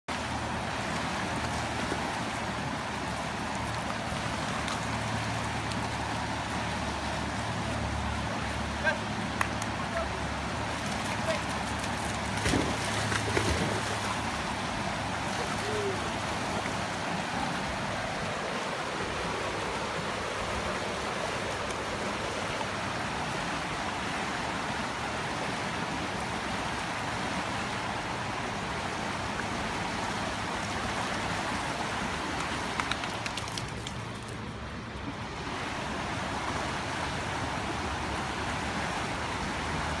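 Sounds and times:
river rushing over rocks: 0.1s - 40.0s
dog splashing through water: 10.9s - 14.3s.

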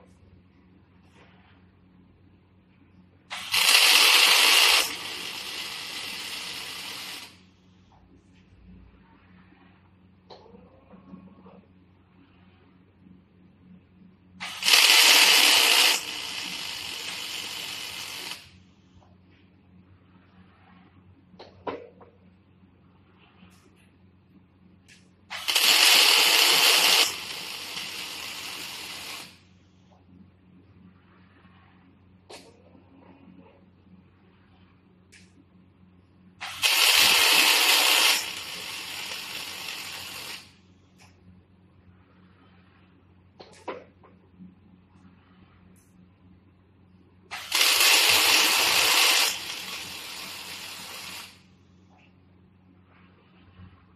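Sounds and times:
welding arc crackling hiss: 3.3s - 7.5s, 14.4s - 18.6s, 24.9s - 29.5s, 36.4s - 40.6s, 47.3s - 51.5s.

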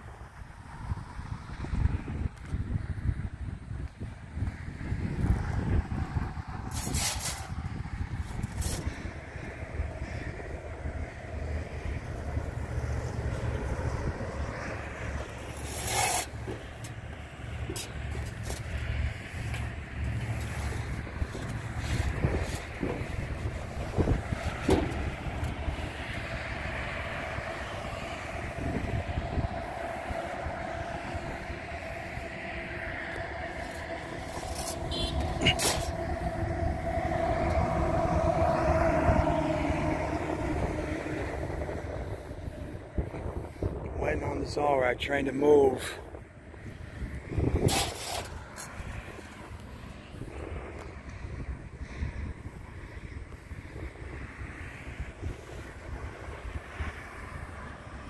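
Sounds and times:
wind buffeting microphone: 0.0s - 58.0s
pickup truck driving past: 20.7s - 43.4s.

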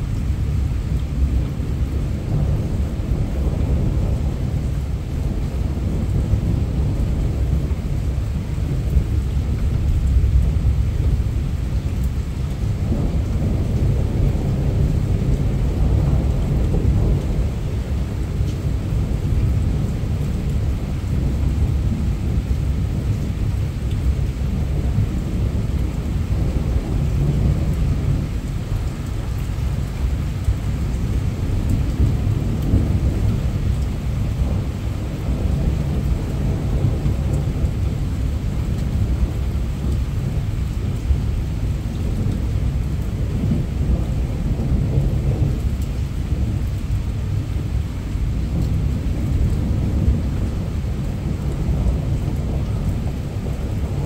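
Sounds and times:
heavy rain falling: 0.0s - 54.0s
rolling thunder rumble: 0.0s - 54.0s.

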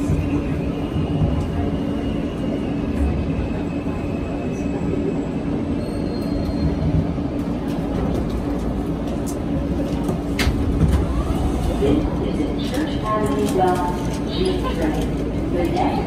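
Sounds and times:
subway train rumbling: 0.0s - 16.0s
faint high wheel squeal: 5.7s - 7.0s.

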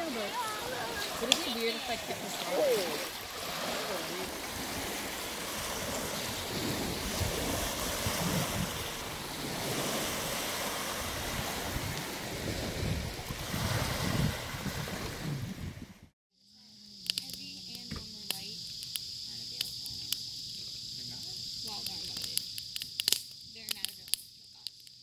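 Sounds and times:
crickets chirping: 0.0s - 14.8s, 16.3s - 25.0s
waves washing onto pebbles: 0.0s - 15.3s
wind on microphone: 0.0s - 16.1s
wood fire crackling: 16.9s - 25.0s.

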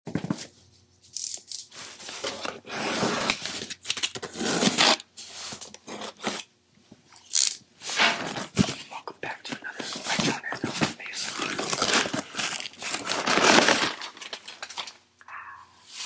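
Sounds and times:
packing tape being slit and torn: 3.2s - 5.1s, 11.6s - 14.8s.

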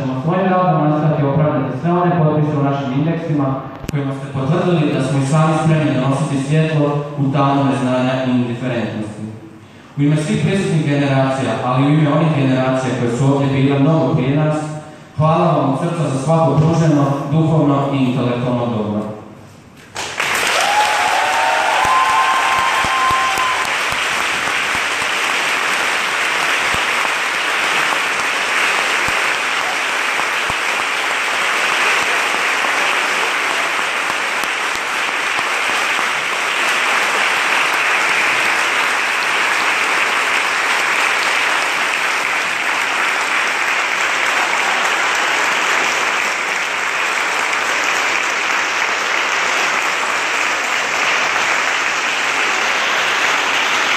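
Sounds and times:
large crowd applauding: 19.9s - 53.9s.

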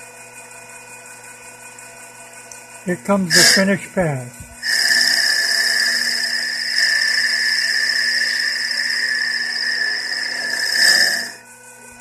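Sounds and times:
lathe whine: 2.8s - 12.0s
wood cutting noise: 3.0s - 3.9s, 4.6s - 11.5s.

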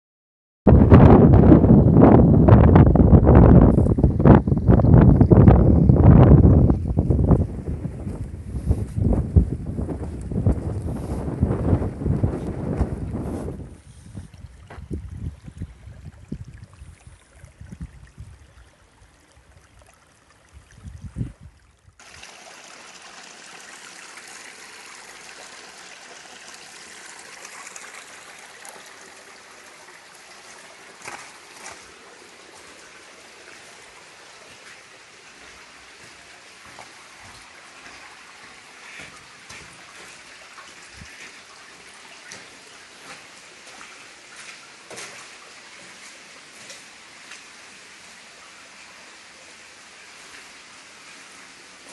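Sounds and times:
wind buffeting microphone: 0.7s - 18.7s, 20.5s - 21.9s
water rushing through culvert: 0.9s - 51.9s.

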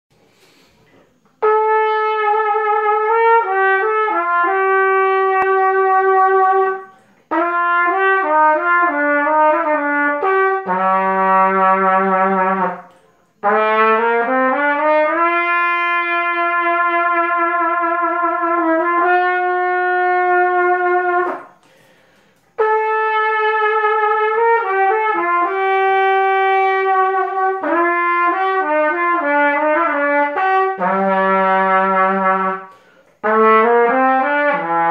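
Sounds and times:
solo trumpet melody: 1.2s - 21.9s, 22.5s - 34.9s.

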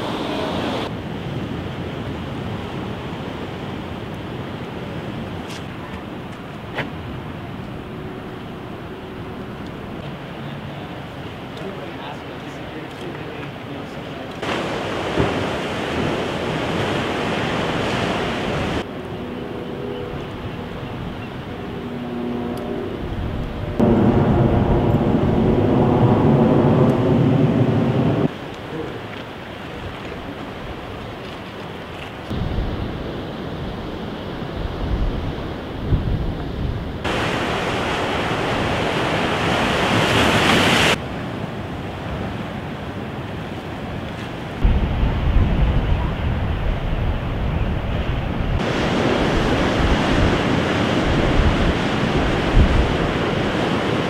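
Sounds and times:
wind: 0.0s - 54.0s
surf breaking over rocks: 11.5s - 18.9s, 37.0s - 41.0s, 48.5s - 54.0s.

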